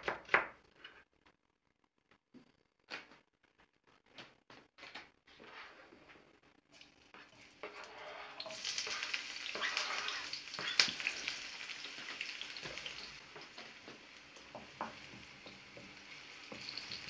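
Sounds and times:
onion sizzling in hot oil: 0:06.8 - 0:17.0.

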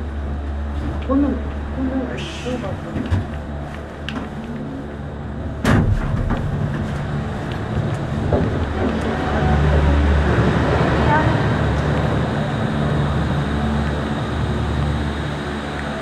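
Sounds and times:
cable car cabin humming: 0:00.0 - 0:16.0
low rumble: 0:00.0 - 0:16.0
loud sharp clunk: 0:05.6 - 0:06.6.

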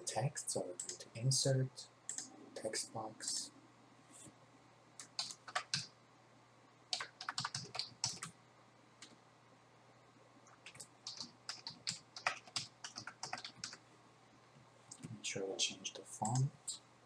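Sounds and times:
typing on a computer keyboard: 0:02.1 - 0:02.3, 0:05.0 - 0:05.9, 0:06.9 - 0:08.4, 0:10.5 - 0:13.8.

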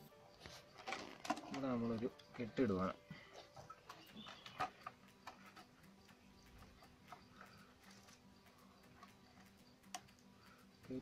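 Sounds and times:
plastic bottle crinkling: 0:00.4 - 0:02.5
faint steady hum: 0:02.1 - 0:11.0.

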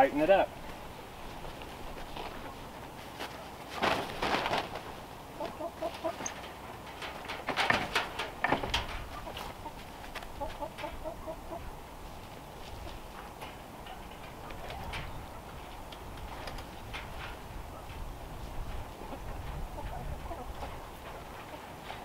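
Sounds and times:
hen clucking: 0:00.3 - 0:03.8, 0:04.9 - 0:06.8, 0:09.0 - 0:13.4, 0:18.8 - 0:22.0
plastic tarp crackling: 0:03.2 - 0:05.0.

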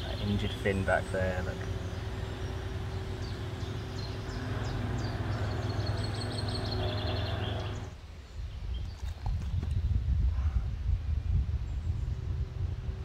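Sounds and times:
steady low hum: 0:00.0 - 0:08.0
small birds chirping: 0:00.0 - 0:10.0
wind rumble on microphone: 0:01.6 - 0:13.0.

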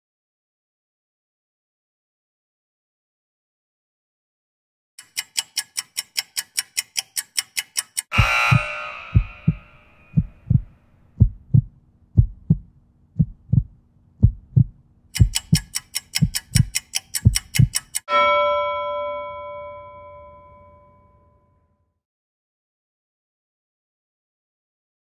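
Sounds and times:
rapid timer ticking: 0:05.0 - 0:18.1
heartbeat thump: 0:08.2 - 0:17.8.

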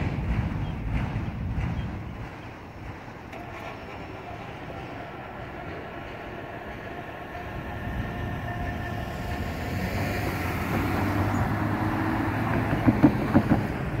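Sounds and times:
car engine and tyres: 0:05.2 - 0:14.0
wheels thumping over rails: 0:10.3 - 0:14.0.

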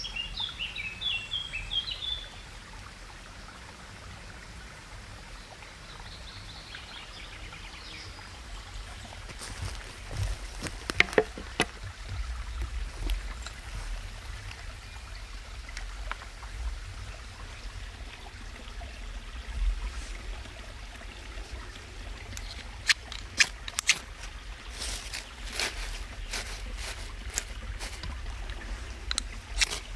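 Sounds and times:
footsteps on dry branches and leaves: 0:09.0 - 0:14.2, 0:23.1 - 0:29.9
twigs snapping: 0:09.3 - 0:11.8, 0:22.3 - 0:29.9.

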